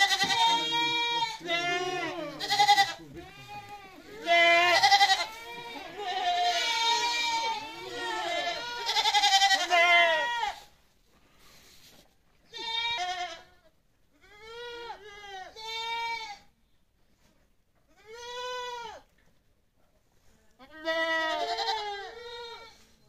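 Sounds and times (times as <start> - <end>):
goats bleating: 0.0 - 10.7, 12.5 - 16.5, 20.6 - 22.8.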